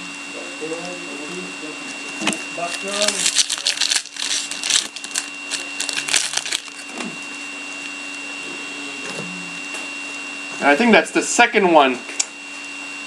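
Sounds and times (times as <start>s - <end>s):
background hum: 0.0s - 11.2s
faint high whine: 0.0s - 13.0s
trading cards rustling: 2.6s - 7.0s.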